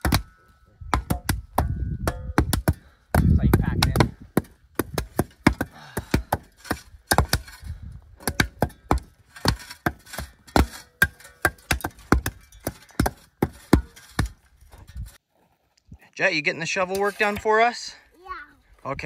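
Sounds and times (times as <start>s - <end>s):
shovels slapping dirt: 3.8s - 15.2s, 16.8s - 17.9s.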